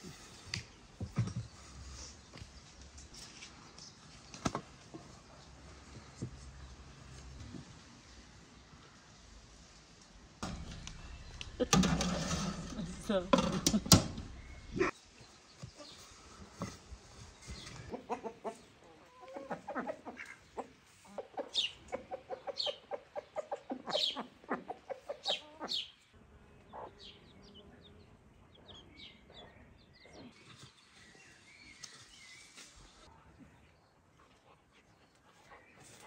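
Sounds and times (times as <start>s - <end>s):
chickens clucking: 10.4s - 15.0s, 17.5s - 25.9s, 26.6s - 27.2s.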